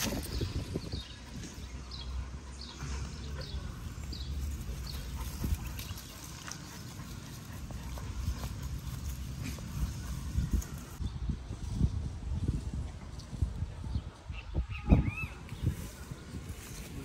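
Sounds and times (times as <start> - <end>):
wind rumble on microphone: 0.0 - 2.0, 7.7 - 17.0
dogs panting: 2.6 - 11.0.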